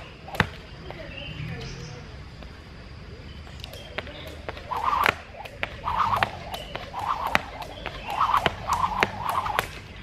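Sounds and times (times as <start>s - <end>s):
skipping rope slapping concrete: 0.0s - 1.0s, 3.7s - 10.0s.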